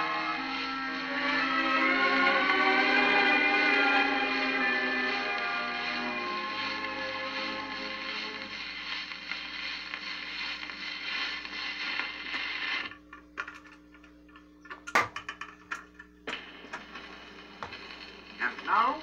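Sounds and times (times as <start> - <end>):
record hiss: 0.0 - 19.0
steady hum: 0.0 - 19.0.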